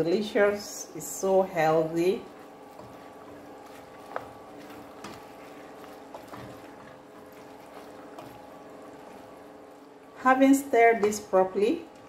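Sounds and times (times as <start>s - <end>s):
faint steady hum: 0.0s - 12.0s
thick soup sloshing: 2.2s - 10.2s.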